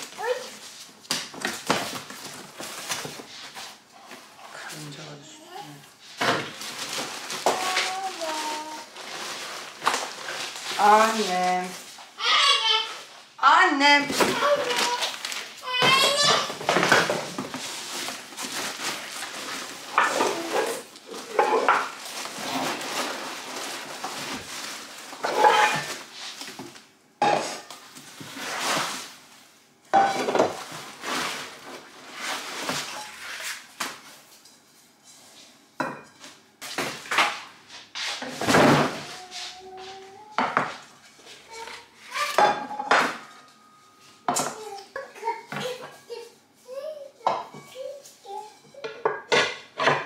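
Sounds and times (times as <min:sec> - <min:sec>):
cardboard rustling: 0:06.5 - 0:11.8, 0:14.2 - 0:21.4
pans knocking and clattering: 0:15.8 - 0:17.6, 0:19.9 - 0:22.0, 0:29.9 - 0:30.7, 0:42.4 - 0:43.4, 0:48.8 - 0:50.0.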